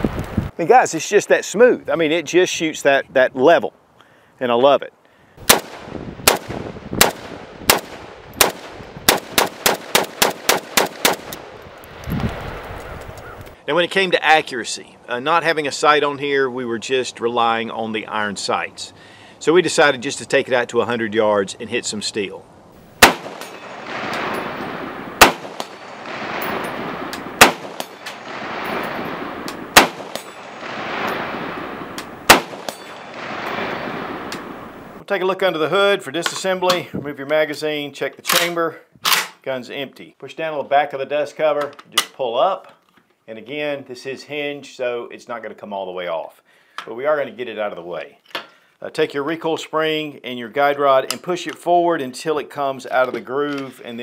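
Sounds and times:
rifle shots: 5.4s - 11.6s, 23.0s - 35.0s.

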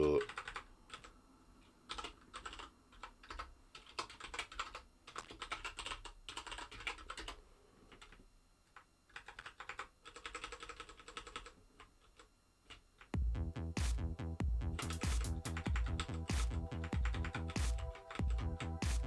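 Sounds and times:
typing on computer keyboard: 0.2s - 1.1s, 1.9s - 13.1s.

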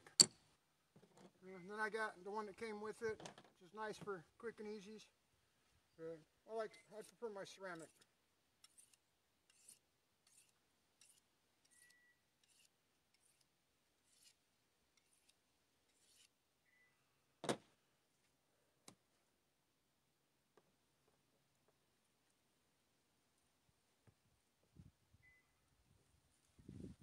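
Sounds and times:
knife strokes on sharpening stone: 6.7s - 14.4s, 15.0s - 16.4s.

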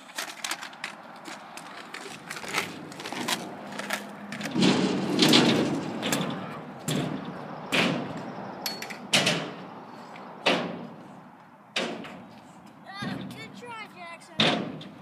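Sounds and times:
kick scooter rolling on pavement: 0.0s - 9.2s
scooter banging on ramps: 2.2s - 9.6s, 10.4s - 11.0s, 11.7s - 12.3s, 12.9s - 13.6s, 14.4s - 15.0s.

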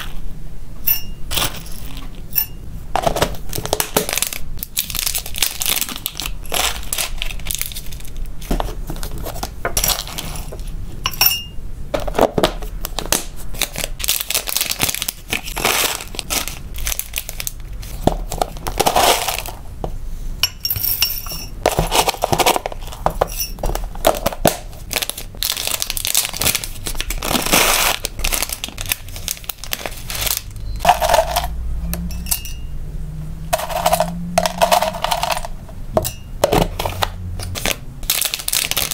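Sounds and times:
plastic packet crinkling: 3.2s - 8.3s, 12.9s - 19.6s, 23.7s - 31.4s, 36.9s - 38.9s
dry food pieces rattling: 3.6s - 8.2s, 23.8s - 31.5s, 38.0s - 38.9s.

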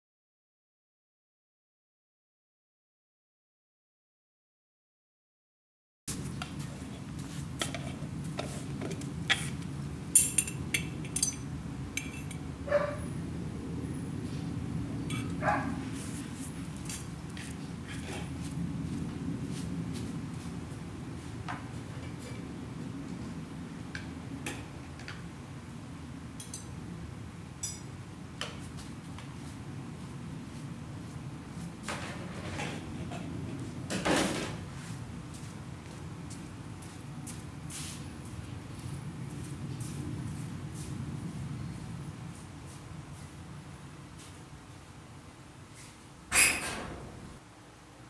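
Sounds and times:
low background hum: 6.1s - 48.0s
metal tongs clinking on glass jar: 10.2s - 11.4s, 12.0s - 12.4s, 15.1s - 15.4s.

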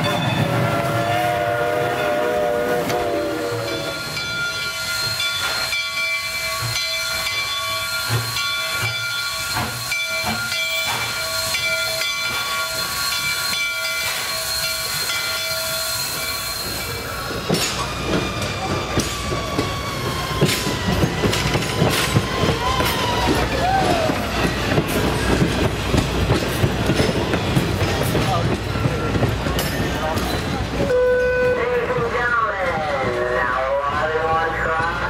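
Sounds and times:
steam hissing: 0.7s - 30.9s
steady high squeal: 3.3s - 25.3s
train wheels clicking over rail joints: 3.8s - 30.9s.

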